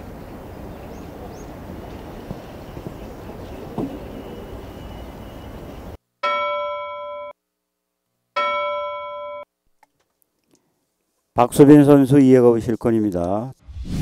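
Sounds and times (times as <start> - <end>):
steady background noise: 0.0 - 6.2
bell-like chime tones: 6.2 - 7.4, 8.4 - 9.5.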